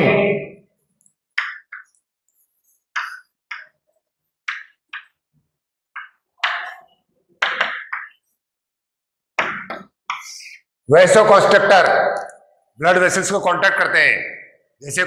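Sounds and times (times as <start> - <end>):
chalk scratching on chalkboard: 1.7 - 3.6.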